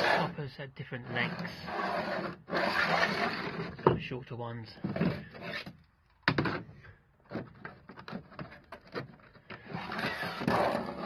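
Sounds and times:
spirit level scraping on timber: 0:00.0 - 0:04.0, 0:09.0 - 0:11.0.

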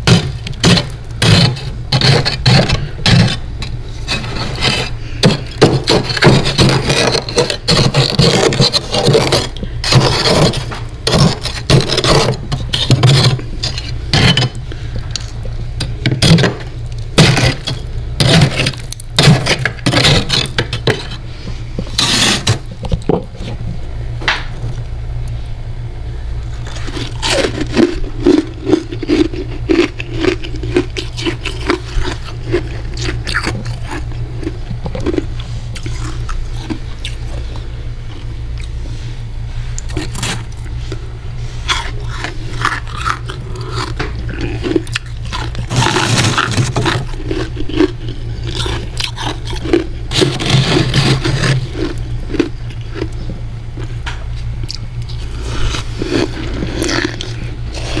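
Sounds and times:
metal spoon scraping frost: 0:00.0 - 0:14.6, 0:17.2 - 0:22.8, 0:26.6 - 0:34.1, 0:39.8 - 0:40.5, 0:41.4 - 0:52.0
steady low hum: 0:00.0 - 0:58.0.

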